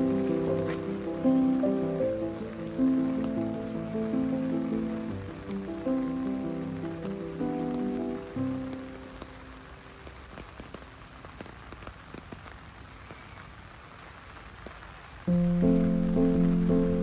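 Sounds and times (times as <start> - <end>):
background music: 0.0 - 9.2, 15.3 - 17.0
rain falling on paving: 0.0 - 17.0
raindrops ticking: 0.0 - 17.0.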